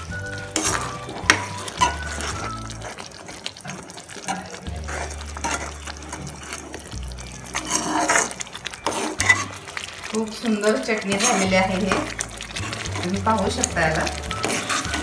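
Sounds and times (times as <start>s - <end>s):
background music with bass: 0.0s - 2.9s, 4.7s - 9.7s, 11.5s - 15.0s
spoon stirring thick chutney: 0.1s - 15.0s
spoon scraping a pan: 0.4s - 15.0s.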